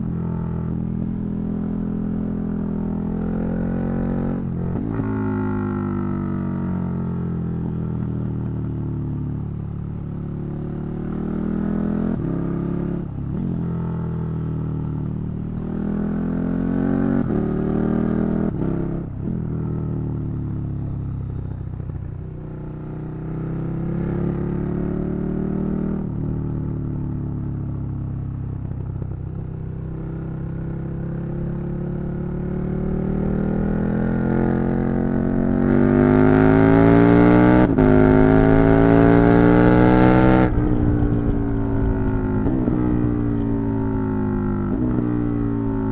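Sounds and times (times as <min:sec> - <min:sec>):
motorcycle engine accelerating: 0:00.0 - 0:45.9.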